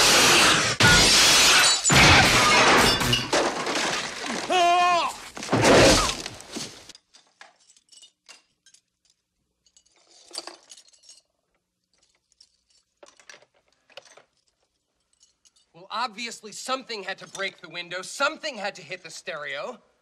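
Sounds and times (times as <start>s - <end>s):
glass and ice smashing: 0.2s - 6.7s
broken glass tinkling: 1.6s - 4.2s, 7.0s - 13.3s, 14.0s - 15.8s.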